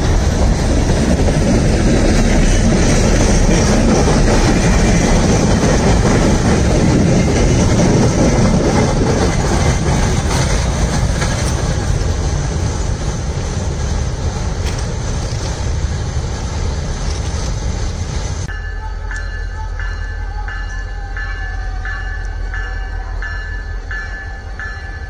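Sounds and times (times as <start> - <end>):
freight train rumbling and clanking: 0.0 - 25.0.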